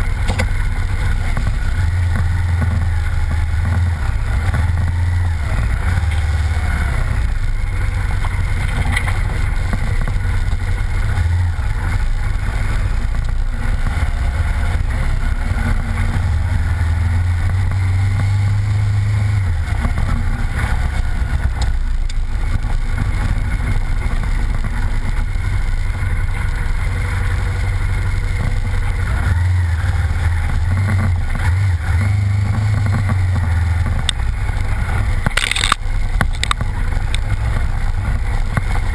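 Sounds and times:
off-road vehicle engine droning: 0.0s - 38.9s.

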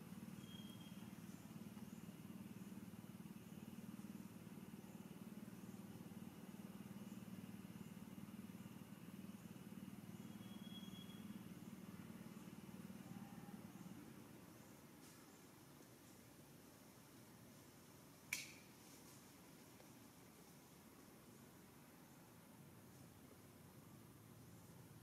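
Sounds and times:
faint low hum: 0.0s - 25.0s
faint high chirp: 0.3s - 2.1s, 10.1s - 12.4s.

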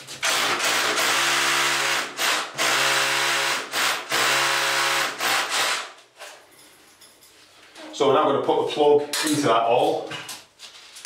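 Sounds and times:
cordless drill boring into masonry: 0.2s - 5.9s.

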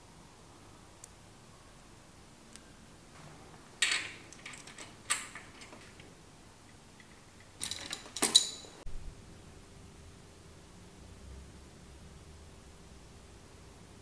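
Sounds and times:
metal tool clinking and rattling: 3.8s - 6.1s, 7.0s - 8.8s.

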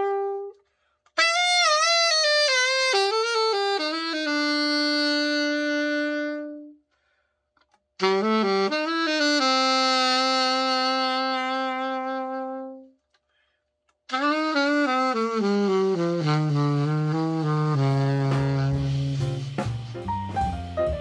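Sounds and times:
alto saxophone playing: 0.0s - 6.9s, 8.0s - 13.0s, 14.1s - 21.0s
backing music with drums and bass: 15.4s - 21.0s.

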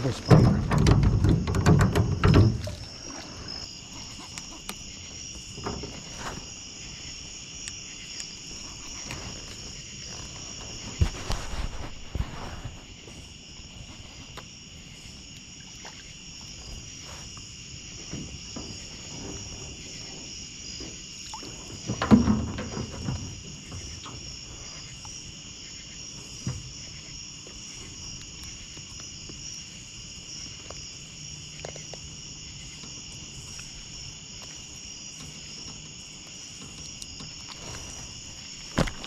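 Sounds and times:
knocks and rustles: 0.0s - 4.8s, 5.4s - 6.6s, 8.8s - 13.2s, 17.9s - 24.6s, 34.5s - 39.0s
crickets trilling: 0.0s - 39.0s.

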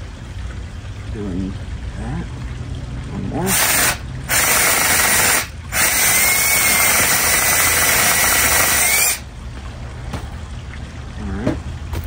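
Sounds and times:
cordless drill boring into log: 3.5s - 9.2s.

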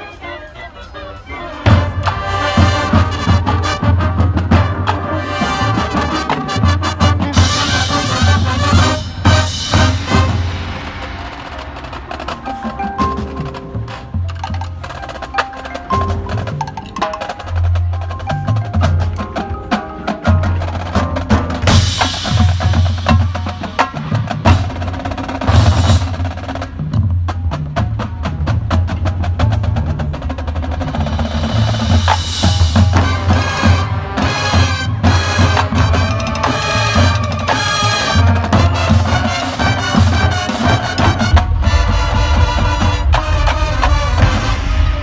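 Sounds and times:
marching band playing: 0.0s - 45.0s
rapid sharp drum strokes: 1.6s - 45.0s
cymbal crashes: 8.7s - 13.2s.

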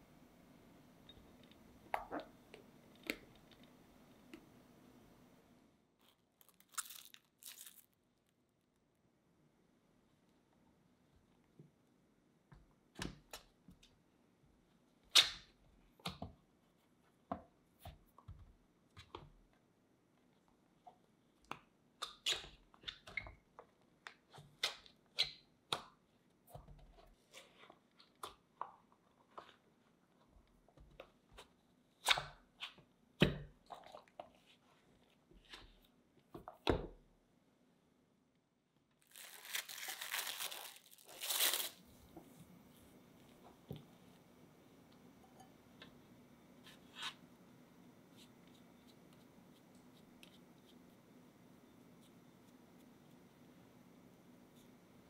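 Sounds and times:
cling film crinkling: 6.0s - 8.0s, 39.0s - 41.8s.

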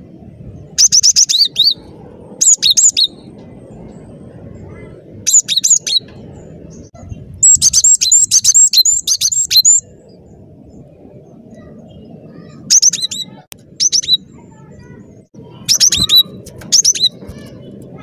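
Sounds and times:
low background rumble: 0.0s - 18.0s
bird singing high sharp notes: 0.8s - 1.8s, 2.4s - 3.3s, 5.3s - 9.9s, 11.9s - 18.0s.

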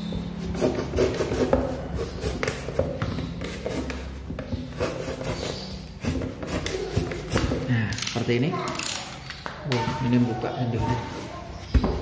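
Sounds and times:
knife cutting cardboard: 0.3s - 7.6s.

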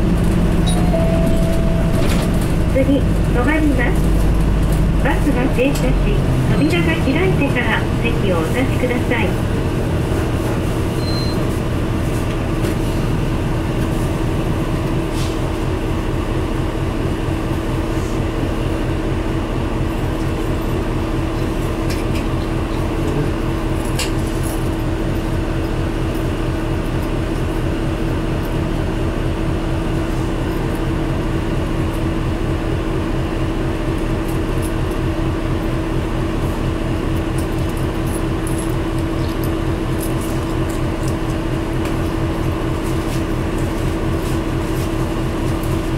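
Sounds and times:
steady hum: 0.0s - 9.8s
bus diesel engine idling: 0.0s - 45.9s.

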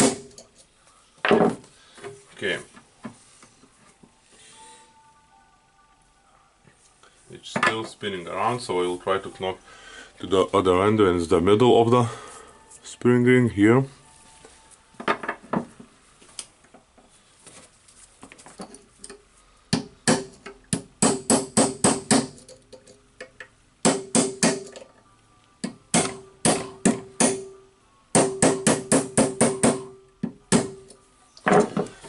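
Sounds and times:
hammer striking metal punch: 0.0s - 0.4s, 19.8s - 22.5s, 23.8s - 24.8s, 25.6s - 30.9s.

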